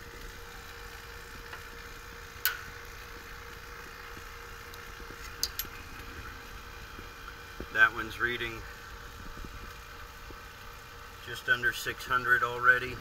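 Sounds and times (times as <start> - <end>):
vacuum pump running: 0.0 - 13.0
hose fitting clicks: 5.4 - 5.7.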